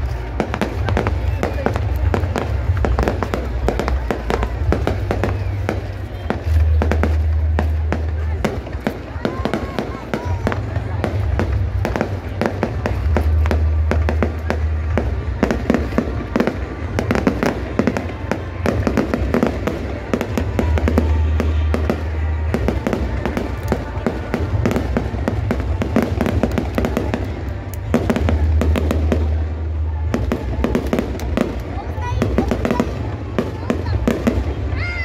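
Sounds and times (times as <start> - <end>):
fireworks bursting and crackling: 0.0 - 35.0.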